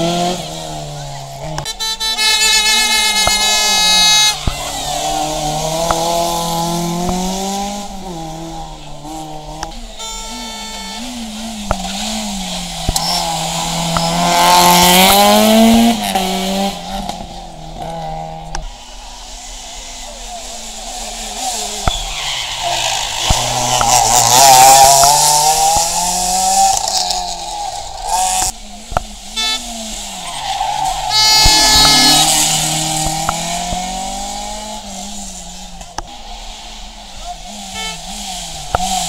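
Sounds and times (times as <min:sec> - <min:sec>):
rally cars passing at full throttle: 0:00.0 - 0:39.0
tyre squeal: 0:21.6 - 0:28.5, 0:29.3 - 0:33.7.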